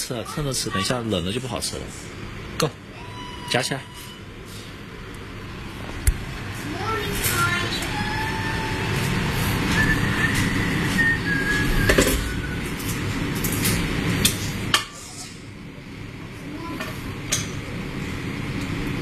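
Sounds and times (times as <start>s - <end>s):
faint whistling tone: 9.6s - 12.7s.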